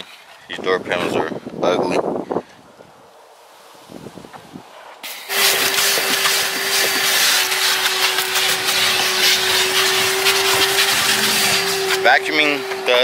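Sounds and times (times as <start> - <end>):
vacuum cleaner running: 5.2 - 13.0.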